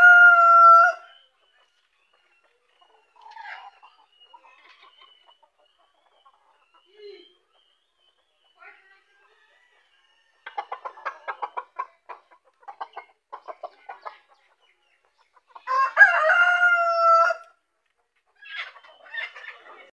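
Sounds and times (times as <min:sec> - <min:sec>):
rooster crowing: 0:00.0 - 0:01.1, 0:15.7 - 0:17.4
chickens clucking: 0:00.0 - 0:19.9.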